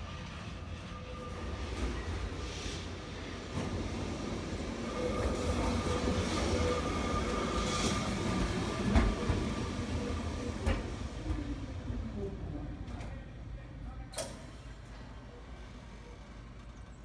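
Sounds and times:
tram rolling on rails: 0:00.0 - 0:13.5.

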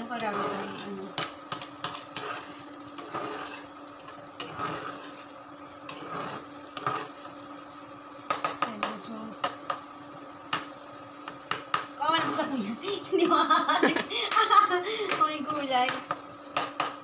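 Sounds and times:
utensil scraping a frying pan: 0:00.0 - 0:09.9, 0:10.5 - 0:13.3
sharp taps on pan: 0:08.3 - 0:09.9, 0:10.5 - 0:12.0, 0:15.1 - 0:17.0.

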